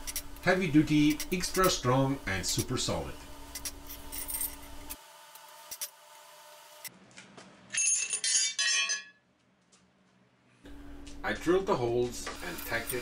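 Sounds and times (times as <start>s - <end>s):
steel plates clinking: 7.7s - 9.2s.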